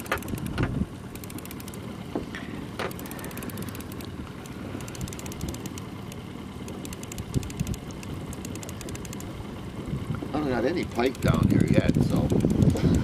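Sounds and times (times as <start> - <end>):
outboard motor running: 0.0 - 13.0
wind on microphone: 11.2 - 13.0.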